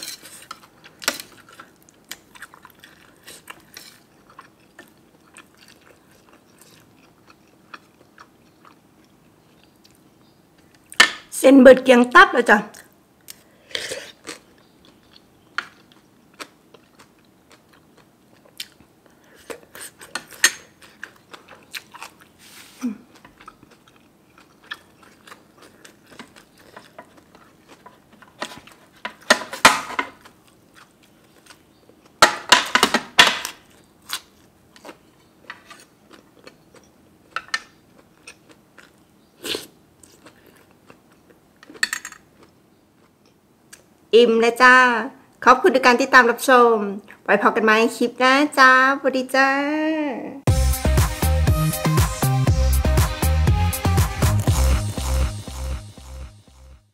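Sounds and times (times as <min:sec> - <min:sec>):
close chewing and biting: 0:00.0 - 0:11.0, 0:13.2 - 0:29.3, 0:30.1 - 0:32.2, 0:33.5 - 0:43.9.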